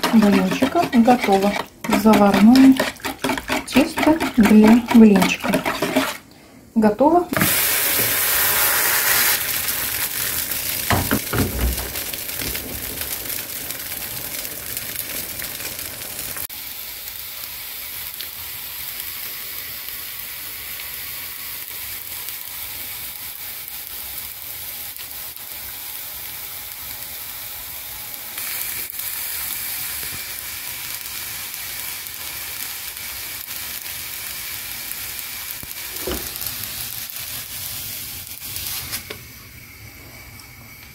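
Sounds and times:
pancake sizzling in a pan: 0:07.4 - 0:40.9.

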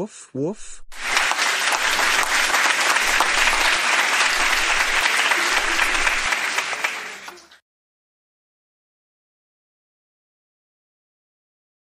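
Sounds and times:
audience applauding: 0:00.9 - 0:07.6.

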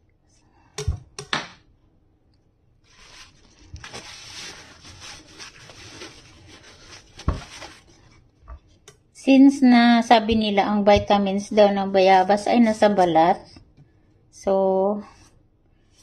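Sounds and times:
paper towel rustling: 0:02.8 - 0:08.8.

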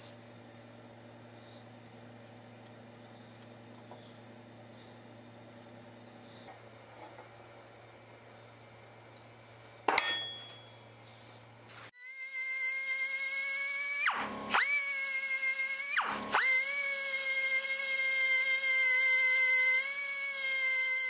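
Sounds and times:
grinder whining against metal: 0:12.0 - 0:21.0.

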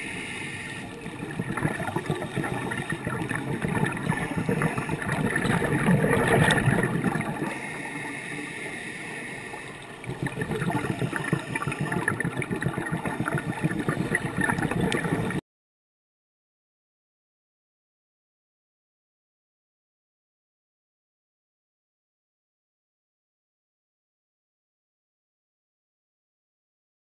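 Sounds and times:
underwater bubbles gurgling: 0:00.0 - 0:15.4.

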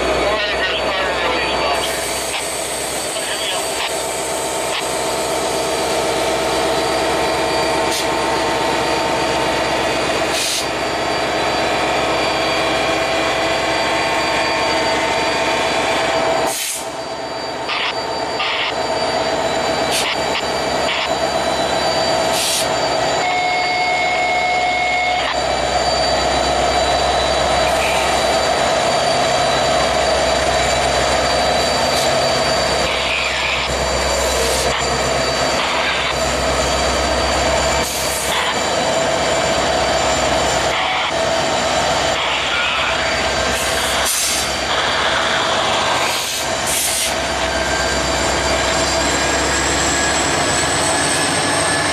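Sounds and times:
diesel locomotives droning: 0:00.0 - 0:51.9
brief steady tone: 0:07.5 - 0:41.2.

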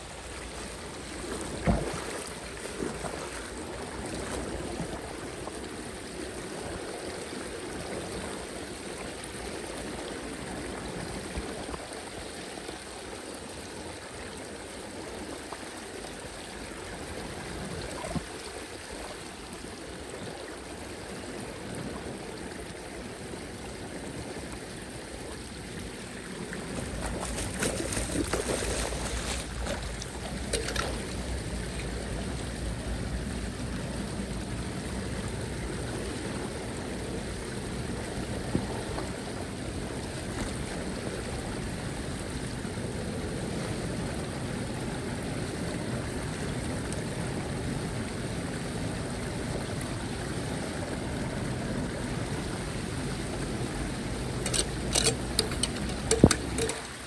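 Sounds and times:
floodwater rushing down storm drain: 0:00.0 - 0:57.0
rake splashing in water: 0:01.6 - 0:03.5, 0:26.8 - 0:31.3, 0:54.4 - 0:57.0.

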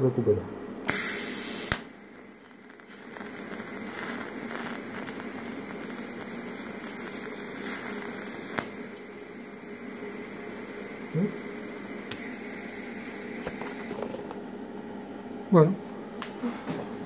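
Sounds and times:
faint steady hiss: 0:00.9 - 0:13.9
welding arc hissing and buzzing: 0:00.9 - 0:14.0.

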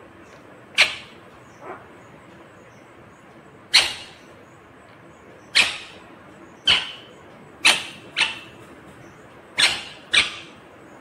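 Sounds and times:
parakeet screeching: 0:03.7 - 0:04.3, 0:05.5 - 0:06.0, 0:09.6 - 0:10.6.

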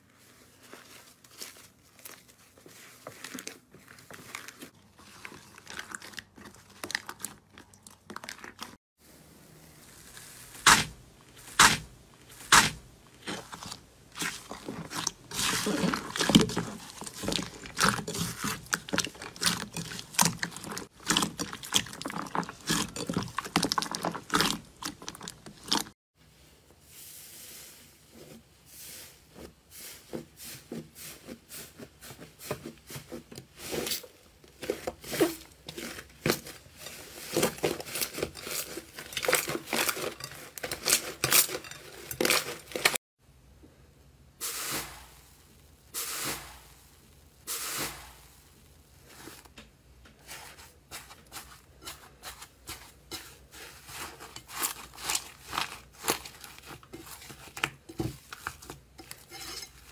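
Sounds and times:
sticky slime squelches: 0:00.2 - 0:08.8, 0:09.6 - 0:26.0, 0:50.2 - 0:59.9.

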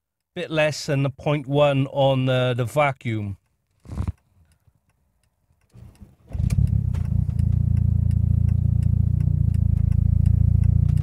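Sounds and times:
car engine starting and idling: 0:05.7 - 0:11.0.

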